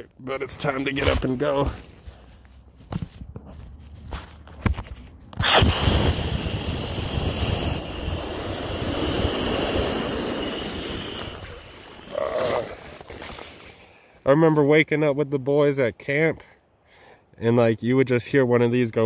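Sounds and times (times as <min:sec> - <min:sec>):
air hissing from valve: 0:05.4 - 0:12.2.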